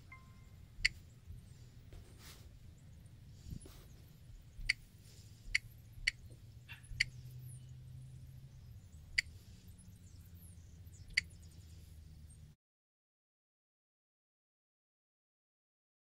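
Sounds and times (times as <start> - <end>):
low background hum: 0.0 - 12.6
sharp high-pitched clicks: 0.8 - 1.1, 5.5 - 6.4.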